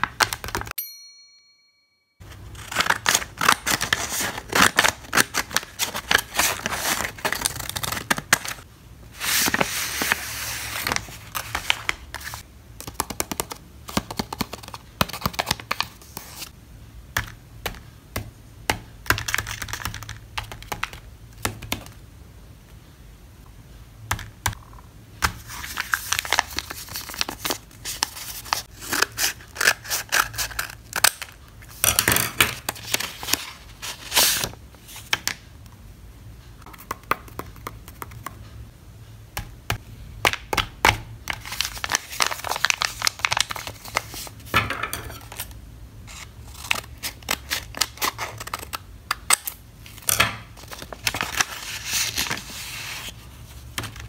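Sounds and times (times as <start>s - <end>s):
paper bags crinkling: 41.3s - 44.4s.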